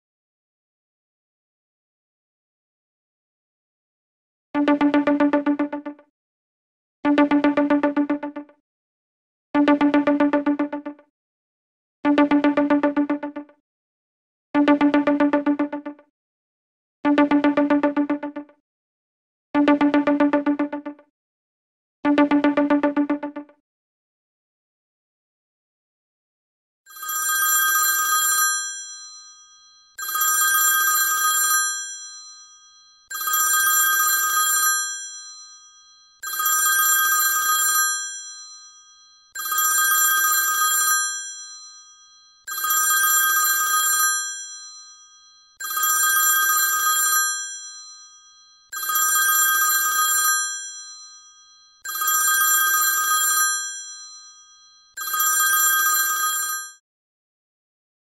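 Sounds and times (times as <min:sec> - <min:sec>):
phone ringtone bell: 0:26.9 - 0:56.8.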